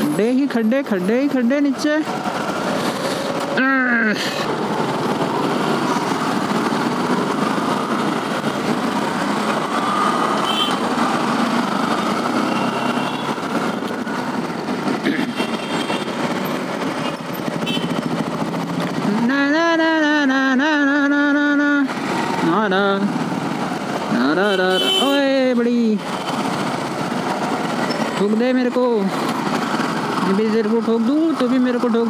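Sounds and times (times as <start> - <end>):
motorcycle engine running: 1.4 - 24.4.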